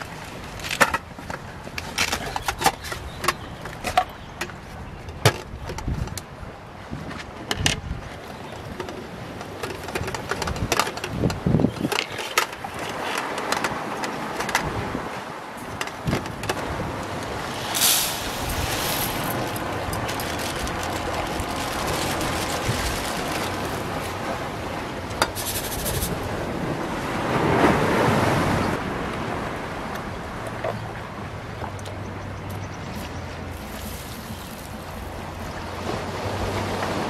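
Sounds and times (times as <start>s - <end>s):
wind: 0.0s - 37.0s
surf: 6.9s - 31.4s
rice poured into metal pot: 17.5s - 24.1s, 33.6s - 35.4s.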